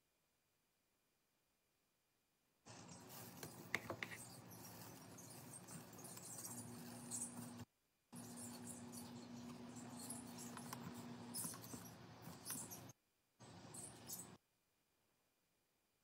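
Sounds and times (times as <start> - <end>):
spoon scraping mesh strainer: 2.7 - 7.6, 8.2 - 12.9.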